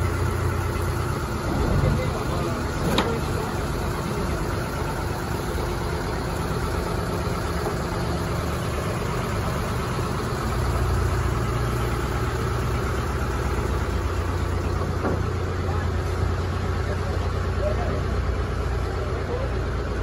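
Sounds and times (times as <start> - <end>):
boat engine low rumble: 0.0 - 20.0.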